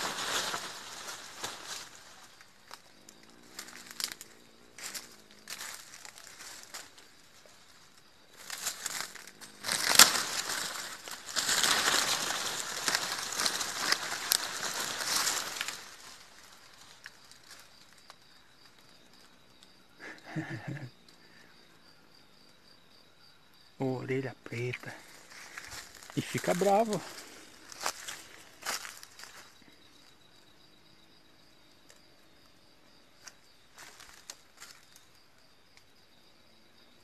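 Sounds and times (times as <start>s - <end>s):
dry leaves crackling and rustling: 0.0s - 17.9s, 25.0s - 29.5s, 33.8s - 34.9s.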